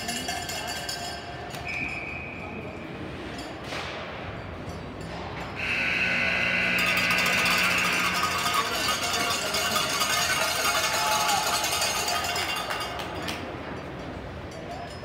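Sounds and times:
loud long high tone: 0:05.6 - 0:09.4.

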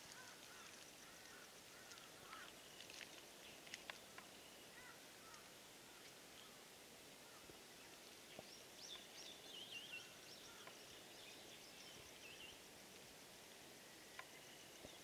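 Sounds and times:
steady outdoor hiss: 0:00.0 - 0:15.0
birds chirping: 0:00.1 - 0:06.6, 0:07.2 - 0:12.6.

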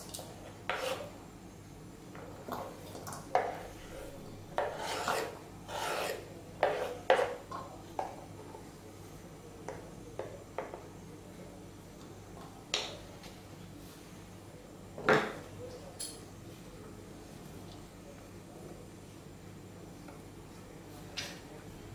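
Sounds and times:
knife scraping wooden board: 0:00.7 - 0:01.1, 0:04.5 - 0:07.4.

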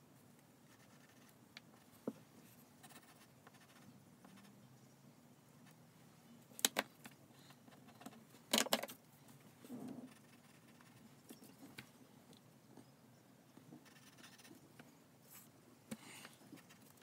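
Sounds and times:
pencil scratching on paper: 0:00.7 - 0:01.9, 0:02.8 - 0:04.5, 0:10.0 - 0:11.0, 0:13.8 - 0:14.6.

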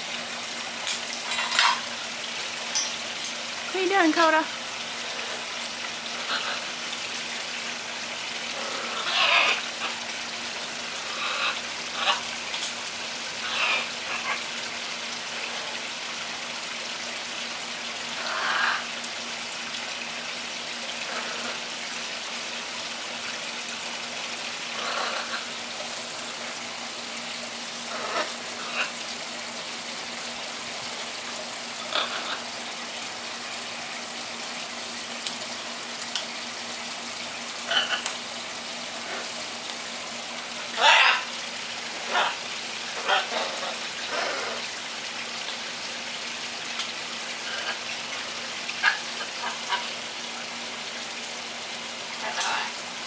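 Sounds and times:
croaky parrot calls: 0:08.6 - 0:10.0, 0:11.1 - 0:12.2, 0:13.4 - 0:14.4, 0:18.2 - 0:18.9, 0:31.8 - 0:32.5, 0:37.6 - 0:38.1, 0:40.8 - 0:41.4, 0:42.0 - 0:44.7, 0:48.8 - 0:50.0, 0:52.2 - 0:52.8.

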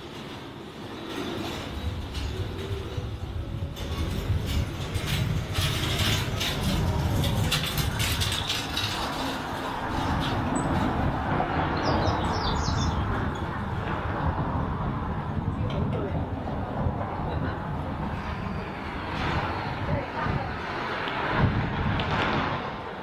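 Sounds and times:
rumble of passing vehicles: 0:00.0 - 0:23.0
rattling clatter: 0:00.1 - 0:11.0.

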